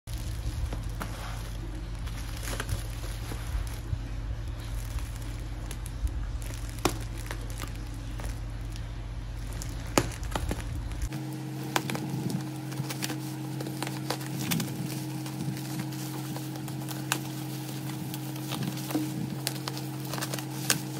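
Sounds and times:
plastic crinkling and crackling: 0:00.0 - 0:20.9
steady low hum: 0:00.0 - 0:20.9
scissors cutting plastic: 0:09.4 - 0:20.9.

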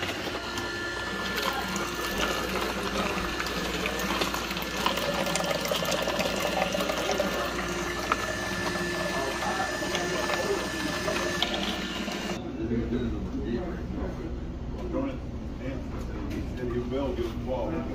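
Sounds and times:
juicer motor hum: 0:00.0 - 0:12.4
juice splashing into jug: 0:01.0 - 0:12.4.

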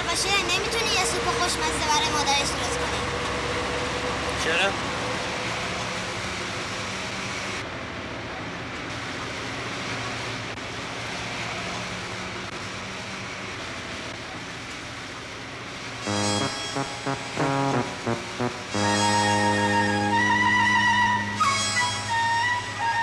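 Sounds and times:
bus engine and road noise: 0:00.0 - 0:23.0
music with brass instruments: 0:16.1 - 0:22.3.

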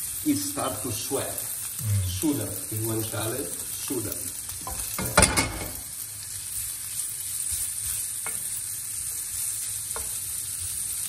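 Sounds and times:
meat sizzling in a frying pan: 0:00.0 - 0:11.0.

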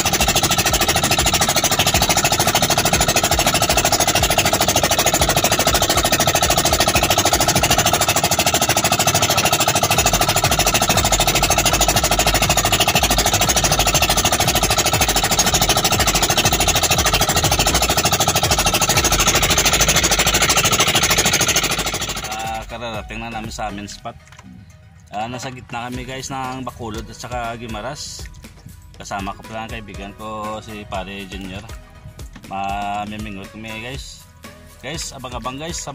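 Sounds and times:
boat engine chugging: 0:00.0 - 0:24.3.

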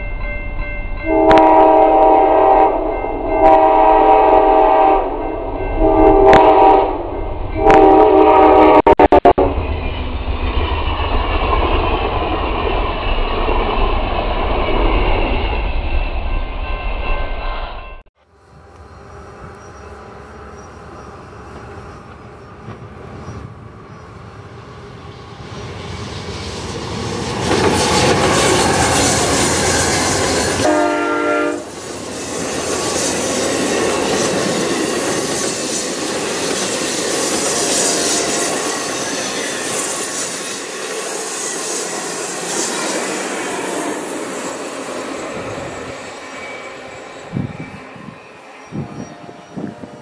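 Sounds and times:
passenger train passing: 0:00.0 - 0:50.0
train horn blast: 0:01.0 - 0:05.2, 0:05.8 - 0:09.6, 0:28.6 - 0:31.7, 0:46.6 - 0:50.0.

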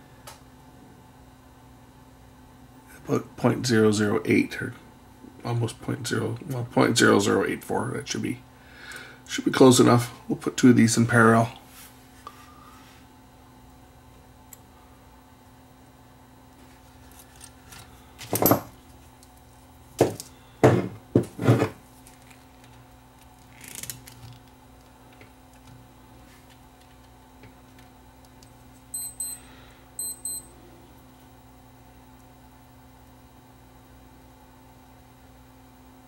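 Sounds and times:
short high electronic beeps: 0:29.0 - 0:29.4.

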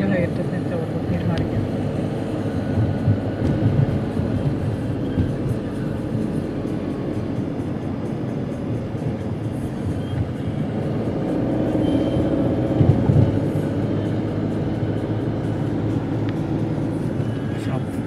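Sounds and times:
car interior road rumble: 0:00.0 - 0:18.0.

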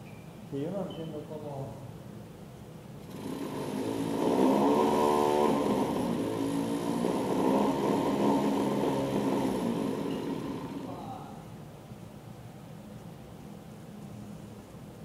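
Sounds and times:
electric starter motor whine: 0:03.0 - 0:11.2.

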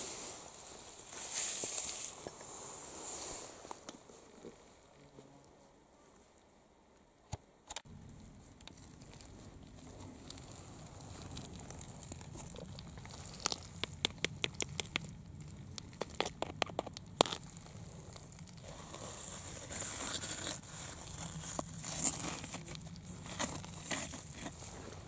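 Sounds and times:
fingers scratching through dirt: 0:08.7 - 0:25.0
pebbles clicking: 0:11.2 - 0:17.5.

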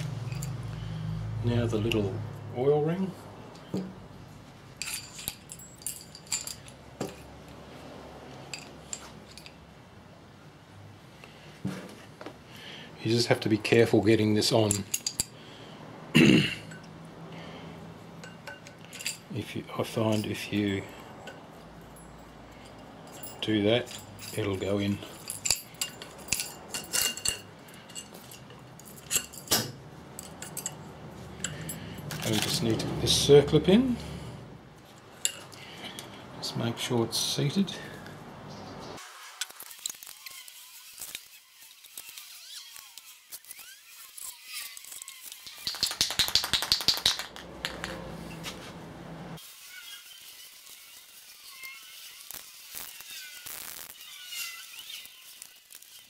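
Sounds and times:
metal parts clinking: 0:00.0 - 0:00.7, 0:04.7 - 0:07.3, 0:08.5 - 0:09.7, 0:14.4 - 0:15.4, 0:18.2 - 0:32.8, 0:34.9 - 0:36.1.

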